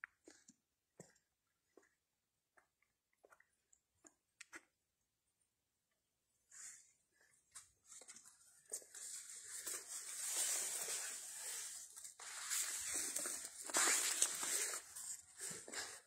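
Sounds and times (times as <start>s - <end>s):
dry leaves rustling and crackling: 9.3s - 15.9s.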